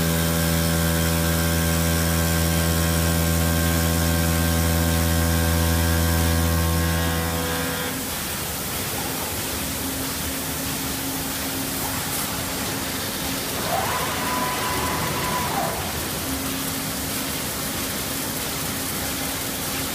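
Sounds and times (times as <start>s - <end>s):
motor whine: 0.0s - 8.2s
spindle motor humming: 0.0s - 8.5s
coolant water hissing: 0.0s - 19.9s.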